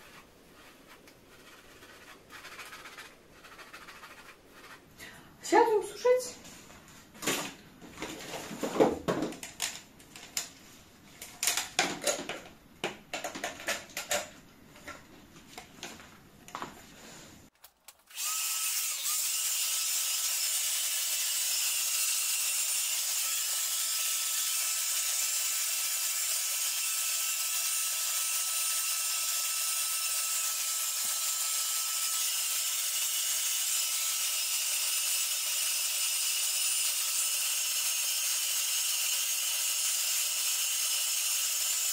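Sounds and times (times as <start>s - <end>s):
knocks and rustles: 6.6s - 10.3s.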